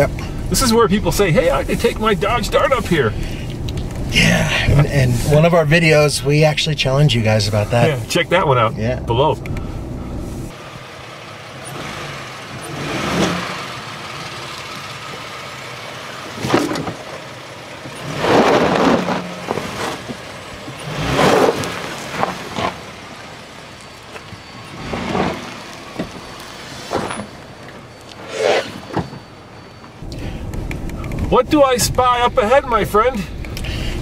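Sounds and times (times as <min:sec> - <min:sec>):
vehicle engine running: 0:00.0 - 0:34.0
tyres on gravel: 0:10.5 - 0:30.1.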